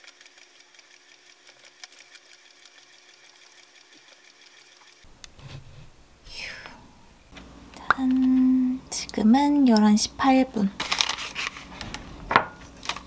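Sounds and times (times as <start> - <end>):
exercise bike flywheel ticking: 0.0 - 5.1
low hum: 5.1 - 10.8.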